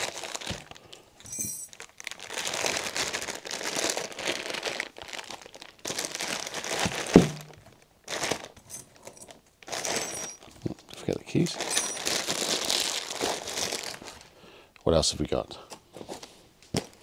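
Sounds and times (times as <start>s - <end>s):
plastic bags crinkling: 0.0s - 14.4s
sharp knock: 7.2s - 7.6s.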